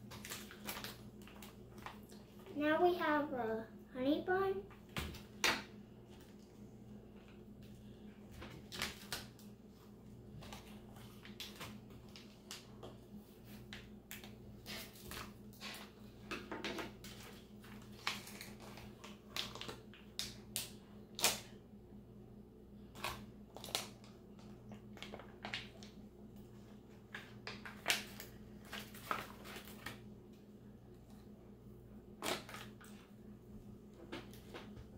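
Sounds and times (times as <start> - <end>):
plastic food pouch crinkling: 17.1 - 20.4, 22.9 - 24.2.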